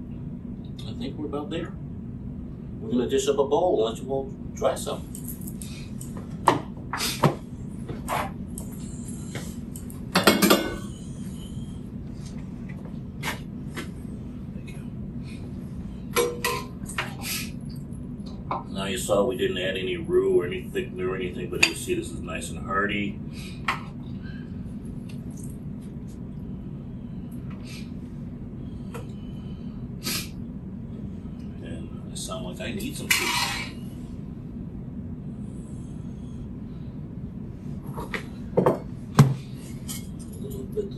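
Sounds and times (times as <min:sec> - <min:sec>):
steady low hum: 0:00.0 - 0:40.9
kitchenware clinking: 0:10.2 - 0:11.0, 0:16.2 - 0:17.2.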